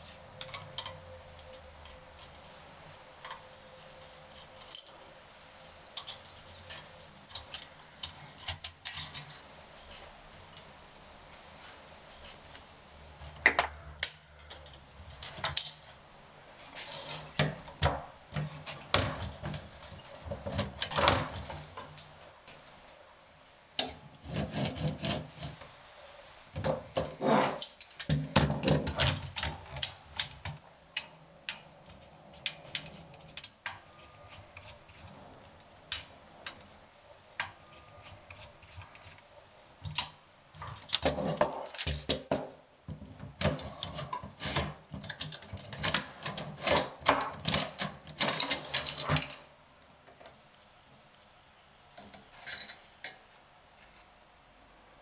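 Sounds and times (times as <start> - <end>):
typewriter parts clicking and rattling: 43.4 - 49.4.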